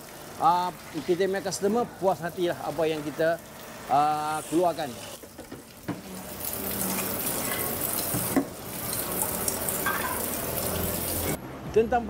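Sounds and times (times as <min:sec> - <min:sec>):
liquid pouring into a metal pot: 0:00.0 - 0:11.4.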